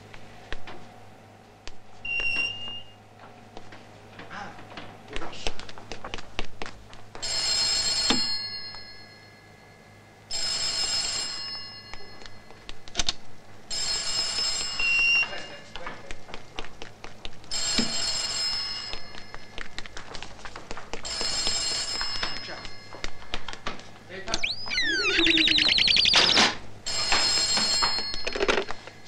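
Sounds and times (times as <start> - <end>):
telephone bell ringing: 7.2 - 12.4, 13.7 - 15.6, 17.6 - 19.2, 21.1 - 23.0, 24.7 - 29.0.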